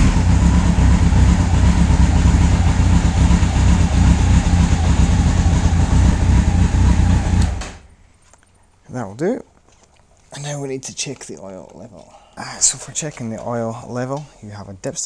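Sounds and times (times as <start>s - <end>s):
motorcycle engine idling: 0.0s - 7.9s.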